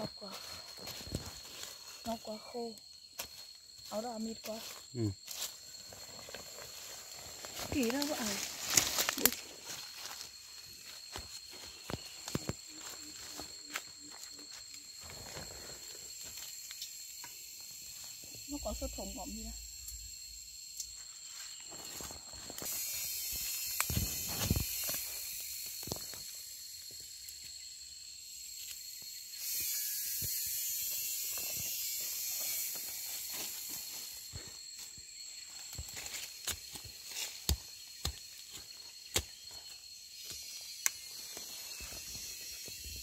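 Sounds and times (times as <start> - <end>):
footsteps crunching through dry leaves: 4.7 - 14.6
twigs snapping: 7.5 - 9.4
high-pitched buzz: 21.9 - 26.9.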